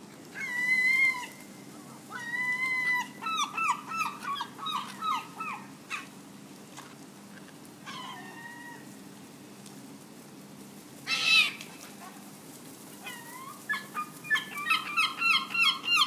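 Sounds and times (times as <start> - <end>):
gulls calling: 2.0 - 6.1, 13.1 - 16.0.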